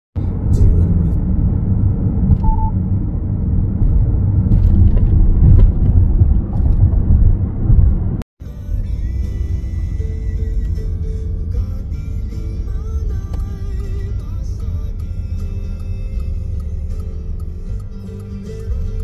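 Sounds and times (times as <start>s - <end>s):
car interior road rumble: 0.2s - 19.0s
short faint beep: 2.4s - 2.8s.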